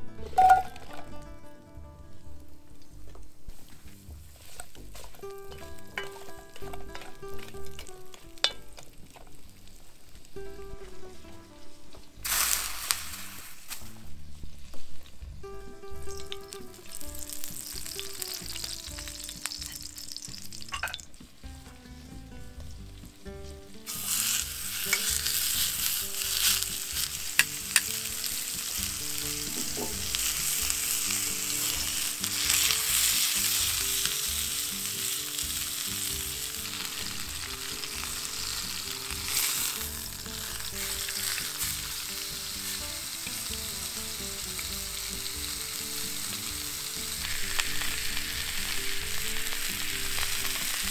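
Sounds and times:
food sizzling in a pot: 0.0 - 50.9.

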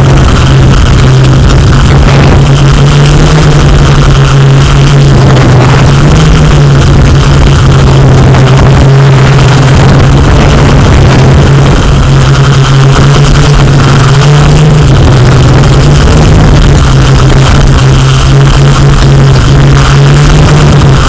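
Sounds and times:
drone propellers humming: 0.0 - 21.0.

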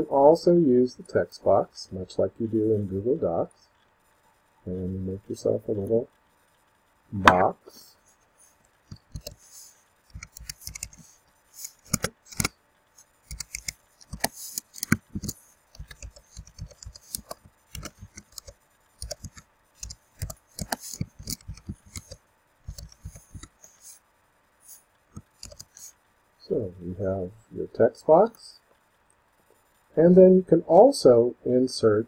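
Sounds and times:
keyboard typing clicks: 8.9 - 9.4, 10.1 - 12.5, 13.3 - 23.8, 25.1 - 25.9.

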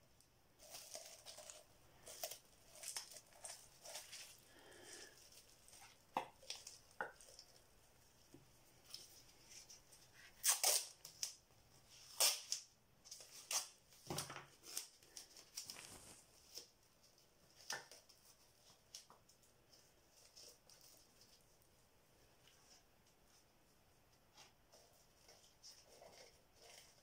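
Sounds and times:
crinkles taps and rustles: 13.0 - 21.4.

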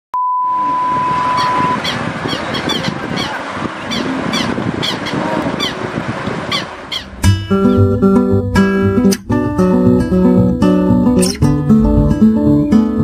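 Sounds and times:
short high chirps falling in pitch: 0.4 - 1.9.

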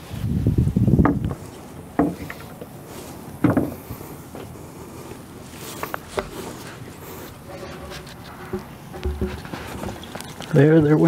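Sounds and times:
wood knocking on wood: 2.0 - 2.4, 3.4 - 3.8, 7.5 - 10.4.

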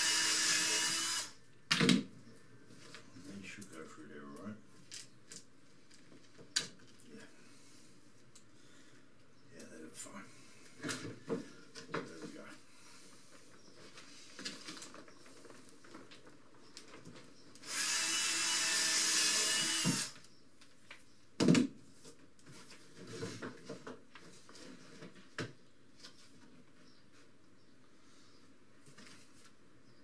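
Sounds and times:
cordless drill drilling into rubber: 0.0 - 1.4, 17.6 - 20.2.

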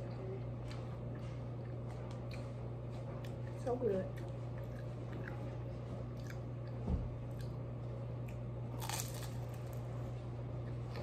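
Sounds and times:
chewing: 0.0 - 7.6
steady low hum: 0.0 - 11.0
crunchy bite into food: 8.8 - 9.8.

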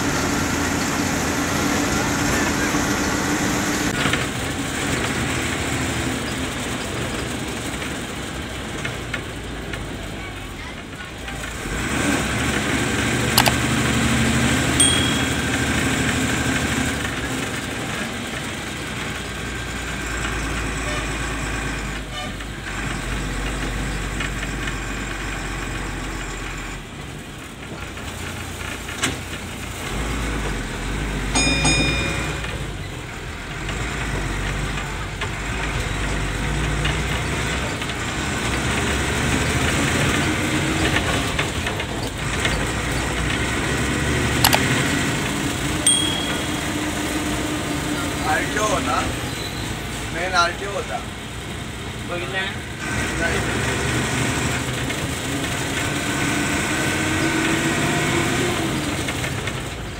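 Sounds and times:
bus diesel engine running: 0.0 - 59.9
road noise: 0.0 - 59.9
short high beep: 14.8 - 16.0, 45.9 - 47.3.

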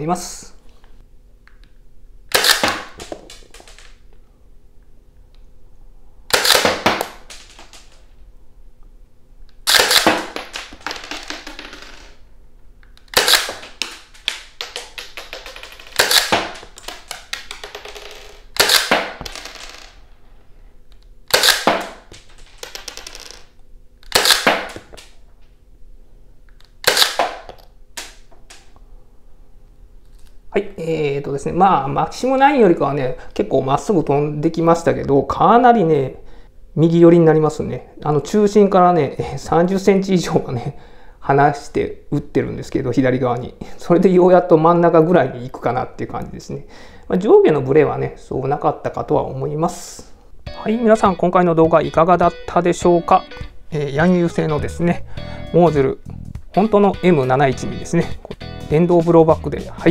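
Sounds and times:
toy pistol shots: 2.3 - 3.2, 6.3 - 7.6, 9.7 - 10.7, 13.1 - 13.8, 14.7 - 16.7, 18.6 - 19.2, 21.3 - 22.0, 24.1 - 24.8, 26.8 - 28.2.

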